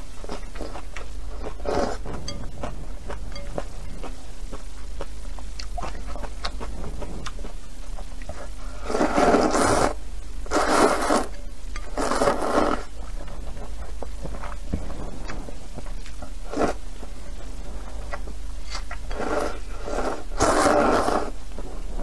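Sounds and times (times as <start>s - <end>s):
person slurping noodles: 1.4s - 2.2s, 8.3s - 13.0s, 16.4s - 16.8s, 18.7s - 22.0s.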